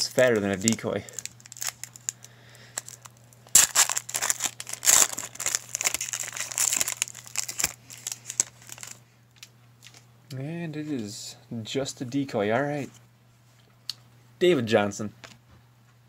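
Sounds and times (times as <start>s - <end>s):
foil wrapper crinkling and tearing: 0.0s - 10.0s.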